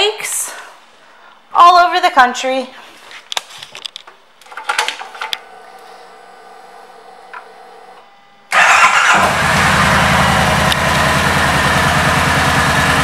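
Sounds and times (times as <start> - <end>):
steady electrical hum: 0.0 - 8.6
motorcycle engine firing: 8.5 - 13.0.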